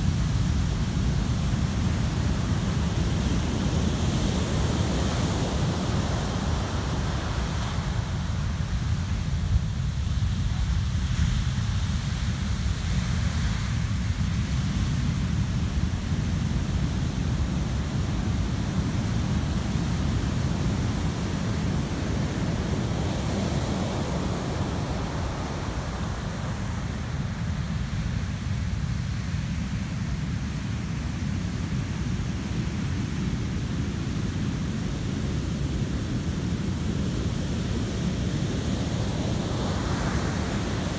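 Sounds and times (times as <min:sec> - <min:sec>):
ocean waves breaking: 0:38.0 - 0:40.9.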